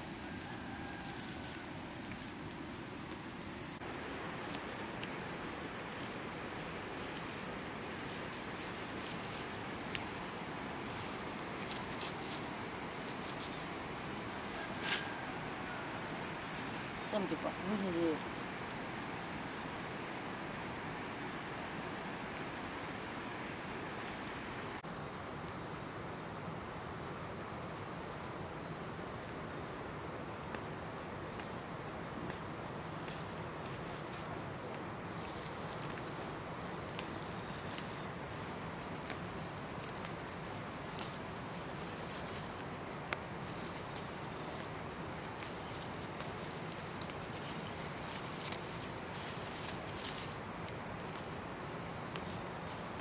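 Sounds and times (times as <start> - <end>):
leaves rustling: 0.0 - 53.0
outdoor ambience rushing noise: 0.0 - 53.0
stems snapping: 8.1 - 10.2, 32.2 - 51.4, 52.1 - 53.0.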